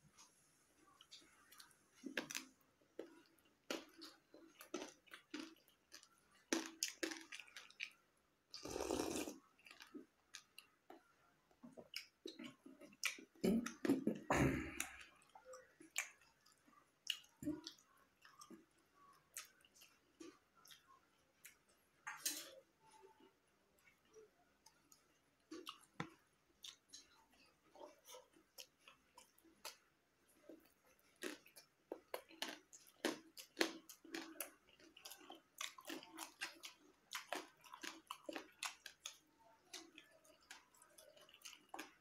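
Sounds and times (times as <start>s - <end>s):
person chewing with wet clicks: 0.2s - 14.0s, 14.7s - 42.0s
noisy eating bursts: 3.0s - 10.6s.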